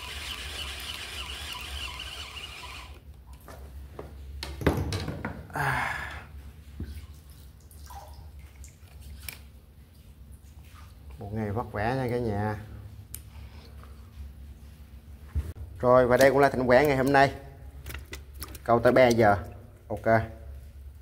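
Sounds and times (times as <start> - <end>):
water trickling and splashing: 6.6 - 11.4.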